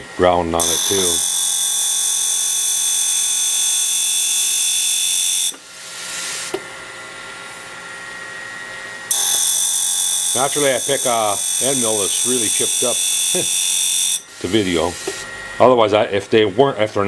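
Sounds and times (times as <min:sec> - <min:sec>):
grinding wheel motor hum: 0:09.1 - 0:15.7.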